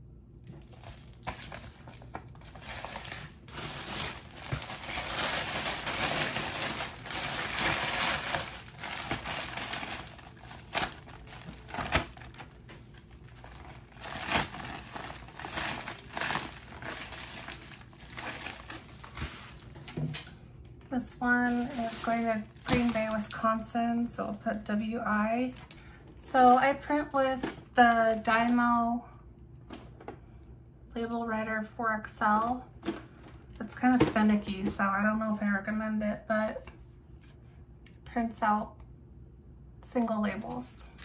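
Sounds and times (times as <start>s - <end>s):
padded envelope crinkling: 0.6s - 20.0s, 21.4s - 24.7s.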